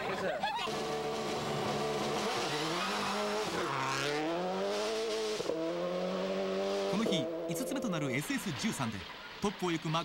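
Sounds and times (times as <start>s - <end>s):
rally car engine accelerating: 0.7s - 7.8s.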